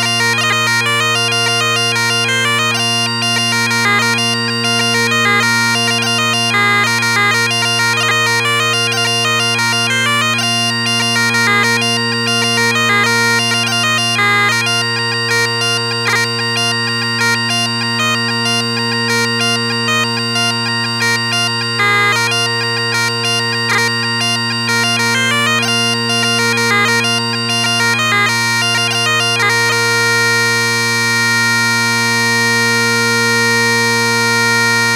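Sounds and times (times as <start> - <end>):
bagpipe chanter melody: 0.0 - 34.9
bagpipe drones: 0.0 - 34.9.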